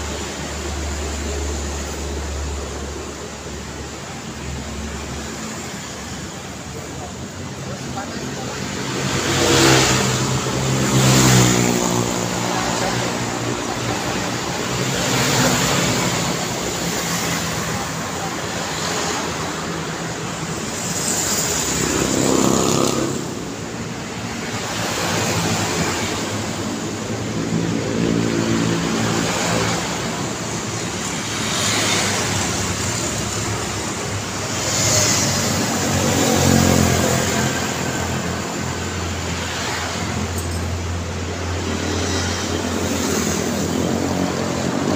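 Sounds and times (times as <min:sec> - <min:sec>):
motorcycles and cars passing: 0:00.0 - 0:44.9
steady traffic noise: 0:00.0 - 0:44.9.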